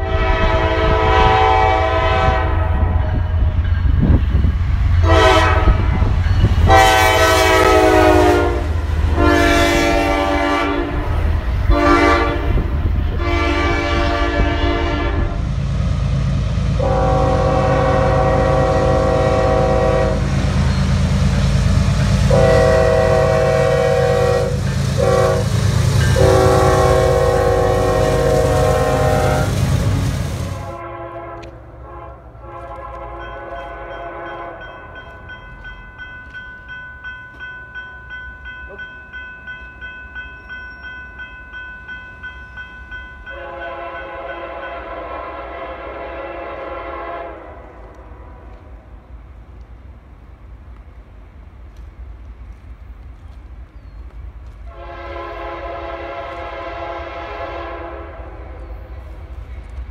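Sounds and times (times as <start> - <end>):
locomotive air horns blowing: 0.0 - 3.4, 5.0 - 15.5, 16.7 - 34.7, 43.3 - 48.7, 54.7 - 59.0
diesel locomotive rumble: 0.0 - 36.7.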